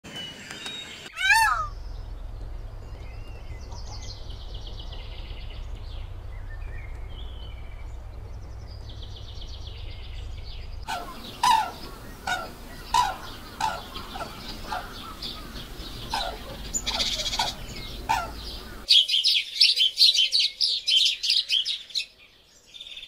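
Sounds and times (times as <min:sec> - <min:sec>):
bird chirping trills: 0:00.1 - 0:22.0
bird calls: 0:00.1 - 0:23.0
low rumble: 0:01.2 - 0:18.9.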